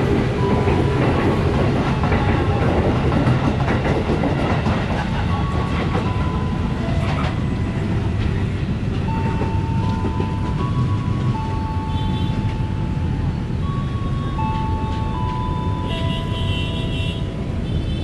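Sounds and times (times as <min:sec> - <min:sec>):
wheels clicking over rail joints: 0:00.0 - 0:12.6
train rumbling past: 0:00.0 - 0:18.0.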